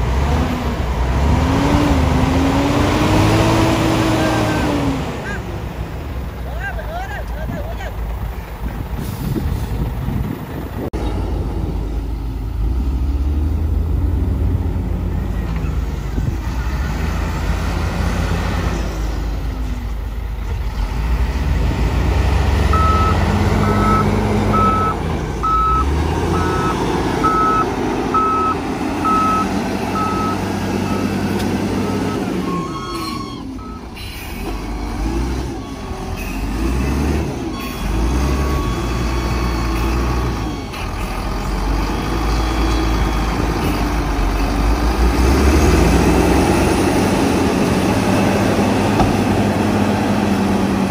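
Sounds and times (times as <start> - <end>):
heavy diesel engines revving: 0.0 - 50.9
reversing alarm beeping: 22.7 - 40.9.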